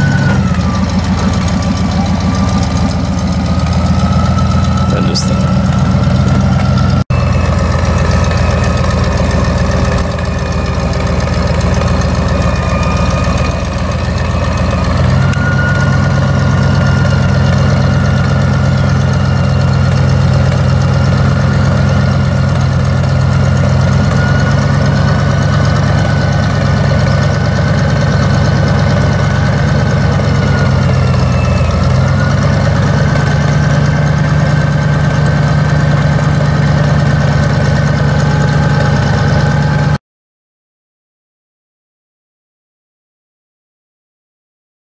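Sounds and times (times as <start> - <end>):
steady whine: 0.0 - 19.7
forklift engine running: 0.0 - 40.0.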